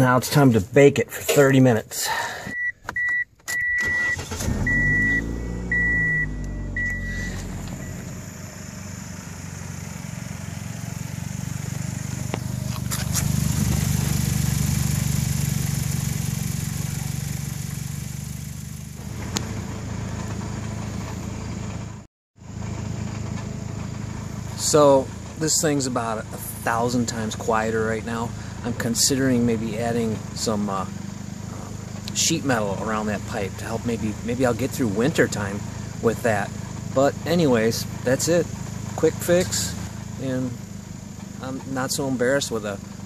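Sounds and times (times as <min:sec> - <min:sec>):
car engine starting and running: 0:00.0 - 0:43.0
dashboard warning chime: 0:02.5 - 0:08.3.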